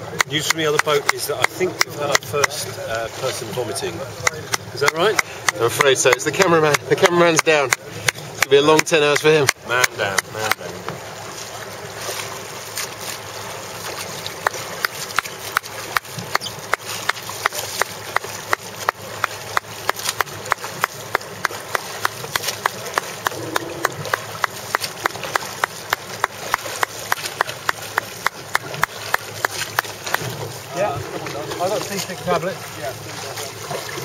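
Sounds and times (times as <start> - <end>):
boat rushing through water: 0.0 - 34.0
wind: 0.0 - 34.0
sharp regular clicks: 4.2 - 10.7.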